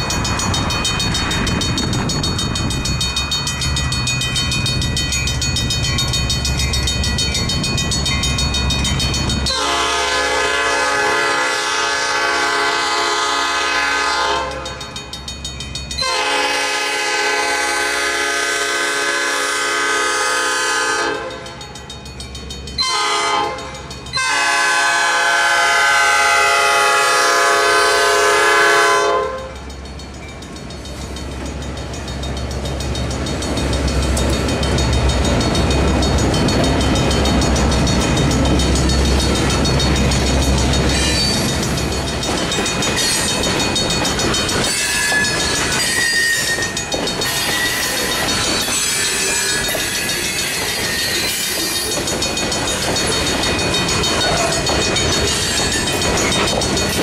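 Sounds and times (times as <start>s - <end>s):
crossing bell ringing: 0.0s - 57.0s
locomotive engine rumble: 0.0s - 57.0s
locomotive air horn blasts: 9.5s - 14.8s, 16.0s - 21.6s, 22.8s - 29.6s.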